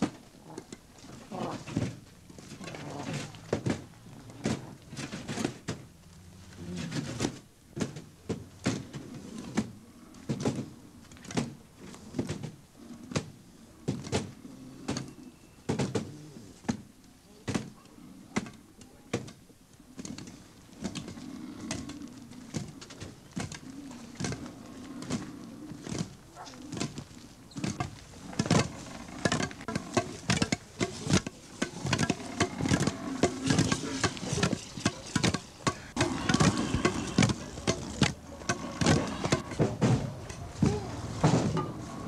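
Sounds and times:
low voices: 17.2 - 42.0
wooden poles knocking: 25.9 - 42.0.

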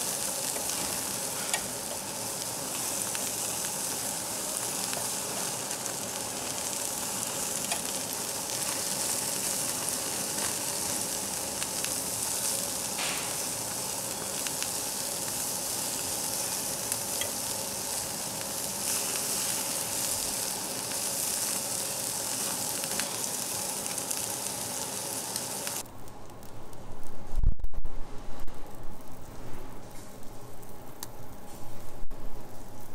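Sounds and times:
meat sizzling on grill plate: 0.0 - 25.8.

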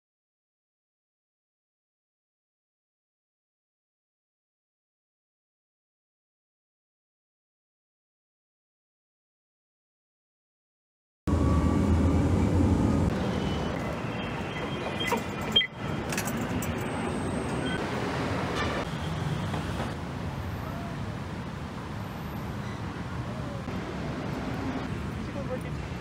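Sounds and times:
city traffic noise: 11.3 - 26.0.

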